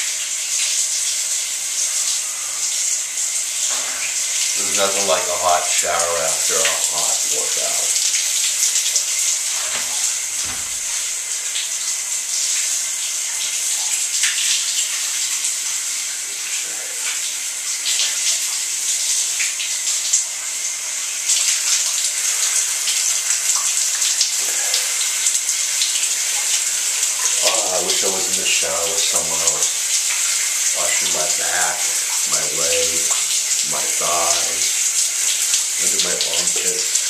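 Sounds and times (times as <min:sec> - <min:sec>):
shower water spray hissing: 0:00.0 - 0:37.0.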